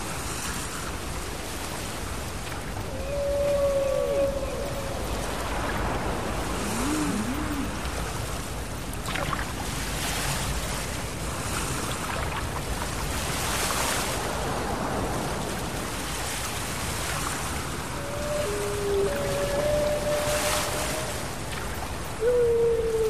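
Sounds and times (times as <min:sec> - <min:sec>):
ocean surf washing in: 0:00.0 - 0:23.0
beluga whale call: 0:02.9 - 0:05.4, 0:06.5 - 0:07.9, 0:17.9 - 0:21.4, 0:22.2 - 0:23.0.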